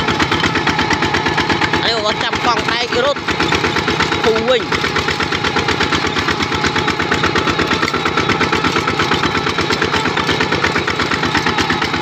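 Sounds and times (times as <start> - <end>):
diesel walking tractor running: 0.0 - 12.0.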